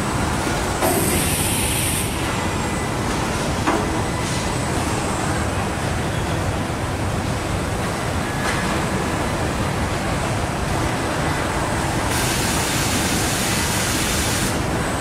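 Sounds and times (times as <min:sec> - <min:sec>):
assembly line machinery hum: 0:00.0 - 0:15.0.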